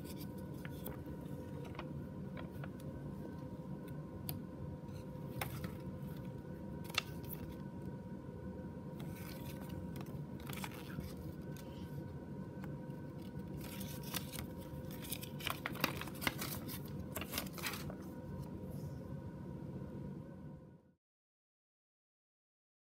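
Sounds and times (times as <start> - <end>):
paper crinkling: 0.0 - 2.8, 4.9 - 7.6, 9.0 - 11.9, 13.0 - 18.5
steady low hum: 0.0 - 21.0.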